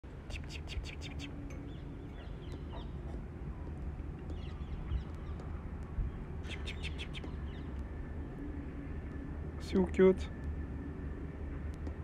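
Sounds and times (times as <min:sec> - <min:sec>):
low outdoor rumble: 0:00.0 - 0:12.0
small birds chirping: 0:00.2 - 0:07.9.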